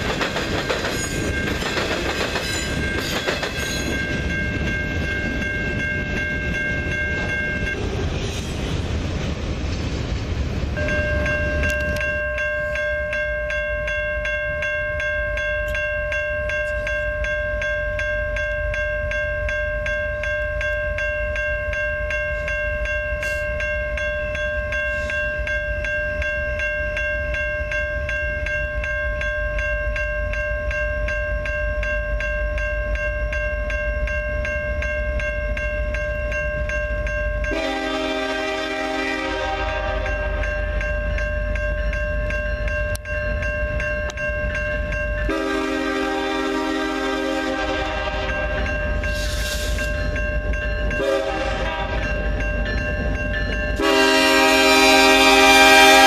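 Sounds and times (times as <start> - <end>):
railroad crossing bell ringing: 0.0 - 9.1, 10.5 - 56.0
locomotive horn blasts: 37.5 - 40.3, 45.3 - 48.5, 51.0 - 52.0, 53.8 - 56.0.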